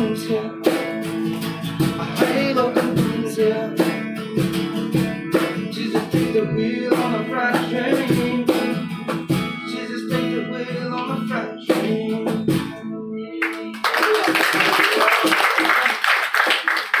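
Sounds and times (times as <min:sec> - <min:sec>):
person singing: 0:00.0 - 0:01.0, 0:02.0 - 0:13.8
acoustic guitar strumming: 0:00.0 - 0:13.8
audience applause: 0:13.4 - 0:17.0.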